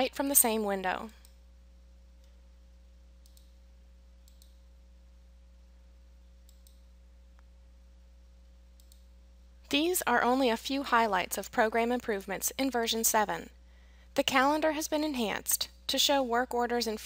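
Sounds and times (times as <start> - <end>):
low electrical hum: 0.0 - 17.0
faint mouse clicks: 3.2 - 3.6, 4.2 - 4.6, 6.5 - 7.5, 8.8 - 9.1.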